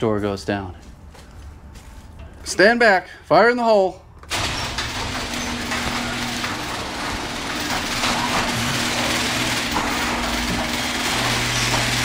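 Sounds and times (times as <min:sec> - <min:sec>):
garage door going up: 0:04.2 - 0:12.0.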